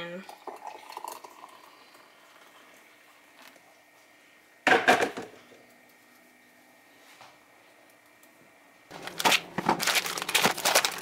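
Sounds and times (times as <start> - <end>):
hot water pouring into mug: 0.2 - 3.8.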